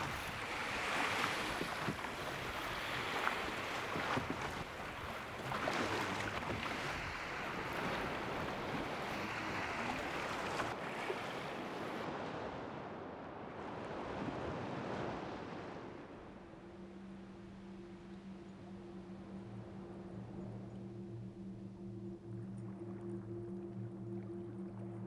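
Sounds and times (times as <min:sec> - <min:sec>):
sea waves washing: 0:00.0 - 0:18.4
wind: 0:00.0 - 0:25.0.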